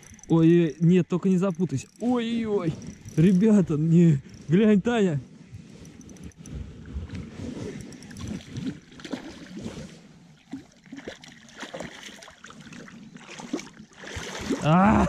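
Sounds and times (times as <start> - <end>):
fish splashing in water: 8.0 - 14.8.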